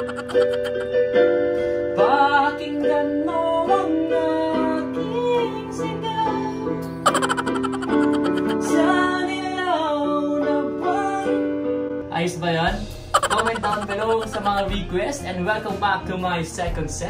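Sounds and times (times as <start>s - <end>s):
electronic keyboard playing: 0.0s - 1.0s, 7.1s - 8.9s, 13.2s - 14.9s
person singing: 13.2s - 14.8s.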